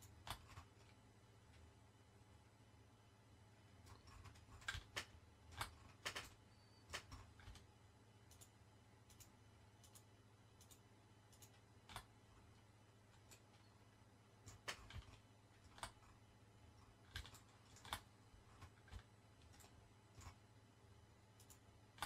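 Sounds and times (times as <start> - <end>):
mouse and keyboard clicks: 0.0 - 1.0, 3.8 - 7.7, 8.3 - 12.6, 13.2 - 13.7, 14.4 - 16.2, 16.8 - 20.4, 21.4 - 22.0
low steady hum: 0.0 - 22.0.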